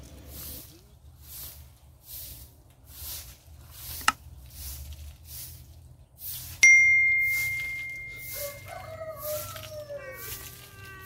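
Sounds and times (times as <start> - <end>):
broom sweeping dirt: 0.0 - 11.0
bell-like ding effect: 6.6 - 9.2.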